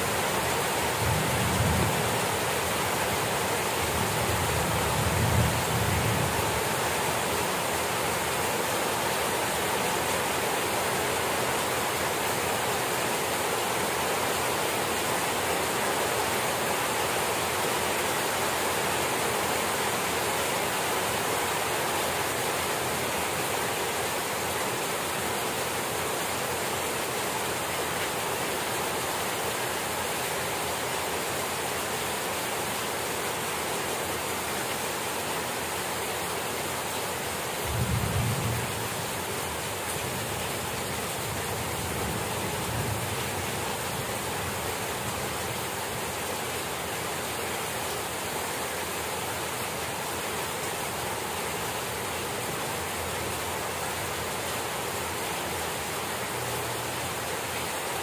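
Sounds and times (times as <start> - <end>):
heavy rain on lawn and plants: 0.0 - 58.0.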